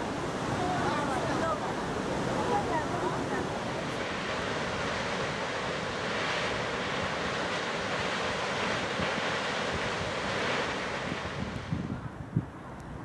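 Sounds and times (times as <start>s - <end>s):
waterfall rushing: 0.0s - 11.6s.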